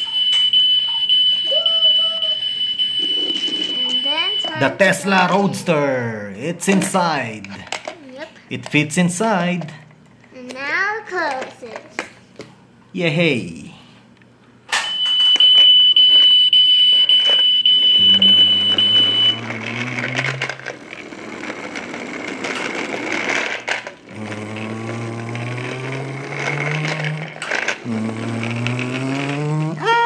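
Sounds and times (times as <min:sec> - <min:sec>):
toy high beep: 0:00.0 - 0:04.7, 0:14.9 - 0:19.5
toy engine-revving sound effect: 0:18.0 - 0:30.0.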